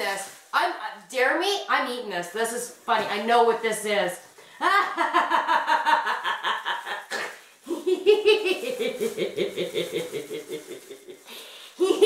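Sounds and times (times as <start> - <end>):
woman laughing: 7.7 - 11.2, 11.8 - 12.0.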